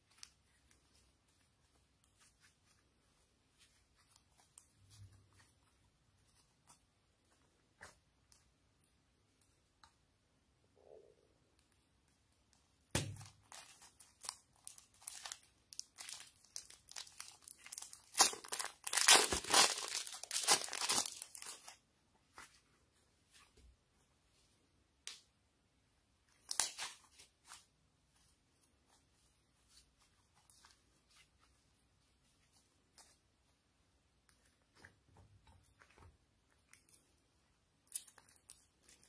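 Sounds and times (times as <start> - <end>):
plastic bag crinkling and tearing: 13.2 - 21.8, 26.4 - 27.0.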